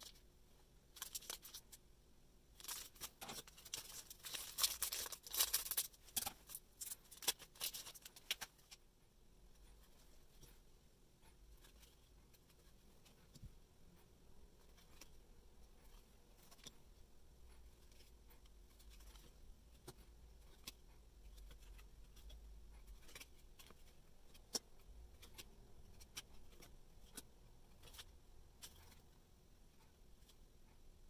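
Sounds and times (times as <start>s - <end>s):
faint irregular clicks: 9.5s - 31.0s.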